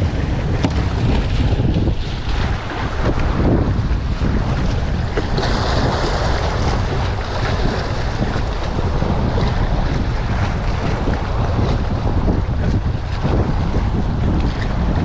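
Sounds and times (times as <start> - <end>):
waves splashing against concrete: 0.0 - 15.0
wind buffeting the microphone: 0.0 - 15.0.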